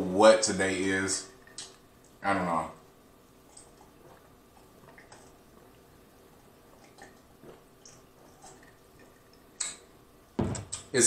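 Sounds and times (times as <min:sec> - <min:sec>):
person gulping water: 0:03.4 - 0:09.9.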